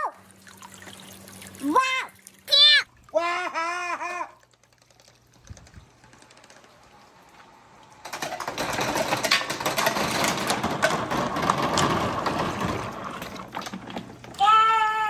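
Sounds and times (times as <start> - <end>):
toy balls clattering through pipe: 8.0 - 14.2.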